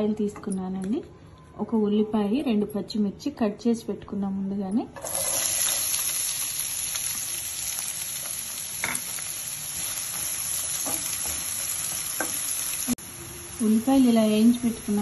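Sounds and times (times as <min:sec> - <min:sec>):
onions sizzling in hot oil: 0:05.0 - 0:15.0.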